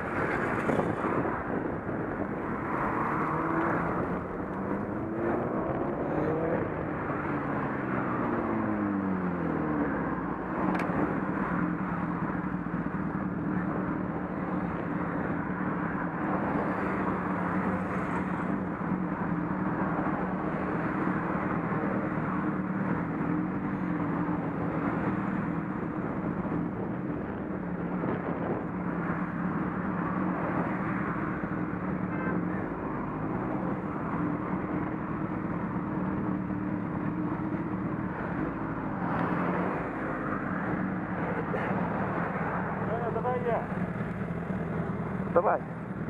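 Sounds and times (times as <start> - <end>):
wind and road noise: 0.0 - 46.0
motorcycle engine running: 18.4 - 46.0.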